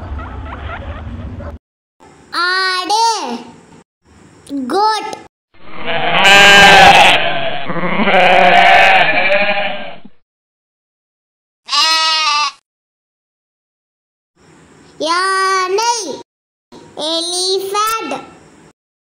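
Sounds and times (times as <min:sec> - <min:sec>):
goats bleating: 0:05.8 - 0:10.0, 0:11.7 - 0:12.6.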